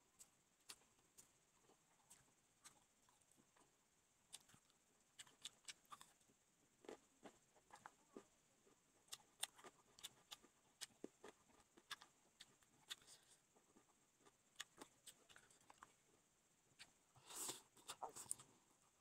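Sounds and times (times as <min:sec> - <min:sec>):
mouth chewing noodles: 0:00.2 - 0:03.7, 0:04.3 - 0:06.2, 0:06.8 - 0:16.0.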